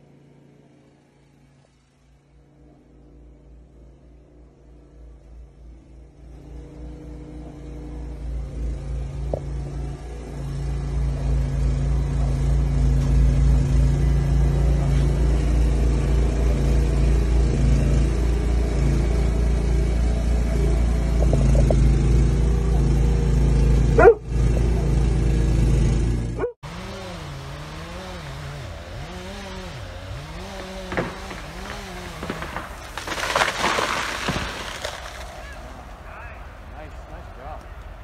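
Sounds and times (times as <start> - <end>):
snowblower engine running: 0.0 - 37.6
dog barking: 24.0 - 25.0, 26.4 - 26.6.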